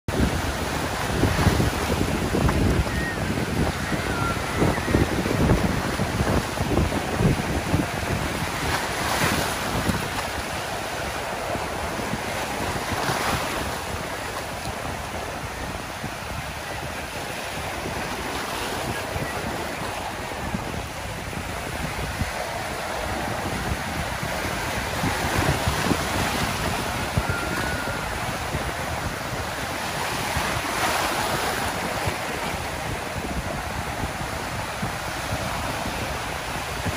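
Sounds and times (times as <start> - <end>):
surf breaking on sandy beach: 0.1 - 36.9
wind buffeting microphone: 0.1 - 36.9.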